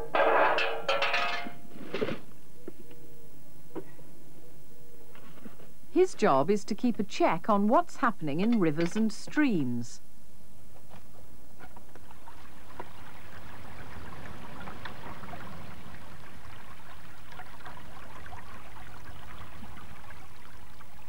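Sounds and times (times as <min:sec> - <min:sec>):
stream trickling over stones: 0:12.0 - 0:21.0.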